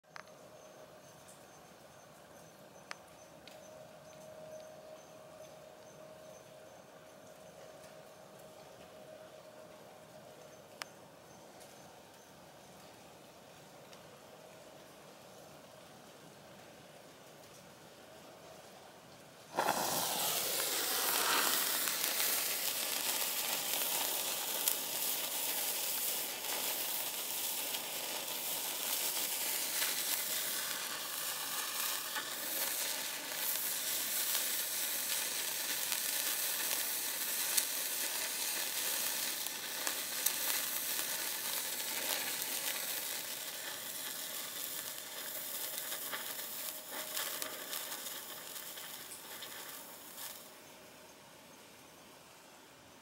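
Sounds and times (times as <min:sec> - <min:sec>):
sparkler fizzing and crackling: 0:19.5 - 0:50.6.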